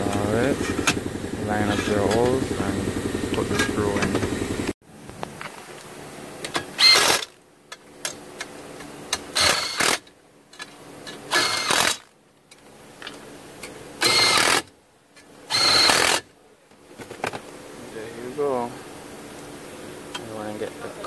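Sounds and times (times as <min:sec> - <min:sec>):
cordless driver motor whine: 0:15.5 - 0:16.2.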